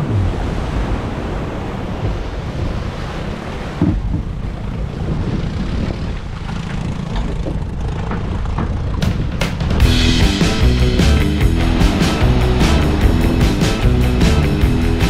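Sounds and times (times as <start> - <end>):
wind buffeting microphone: 0.0 - 10.3
water rushing past boat: 0.0 - 15.0.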